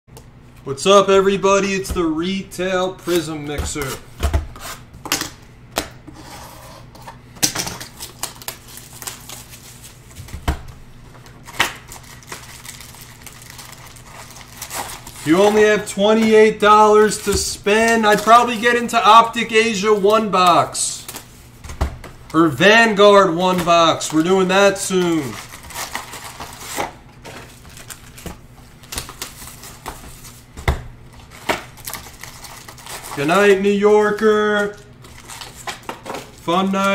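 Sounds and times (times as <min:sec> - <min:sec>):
wrapper rustling: 0:07.8 - 0:10.3, 0:11.2 - 0:15.9, 0:23.7 - 0:30.5, 0:31.1 - 0:36.9.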